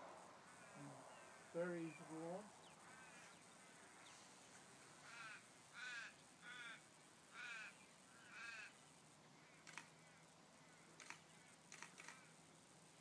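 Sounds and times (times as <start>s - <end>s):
bird calling: 0.4s - 4.4s.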